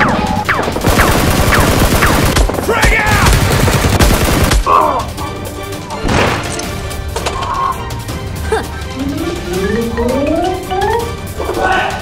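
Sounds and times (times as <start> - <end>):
rapid automatic gunfire: 0.0 - 4.7.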